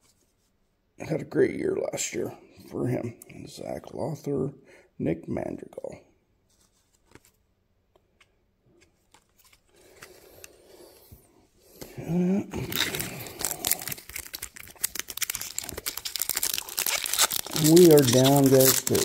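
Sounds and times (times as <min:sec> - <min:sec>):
faint handling noises: 0:06.4 - 0:12.0
wrapper crinkling as torn open: 0:12.5 - 0:19.0.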